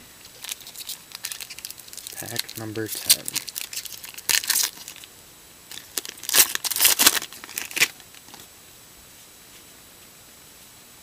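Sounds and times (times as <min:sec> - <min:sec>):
foil wrapper tearing and crinkling: 0:00.2 - 0:05.1, 0:05.7 - 0:08.4.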